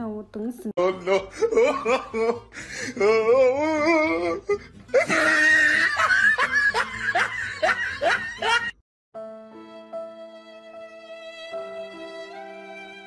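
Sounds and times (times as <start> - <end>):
person laughing hard: 0.8 - 8.8.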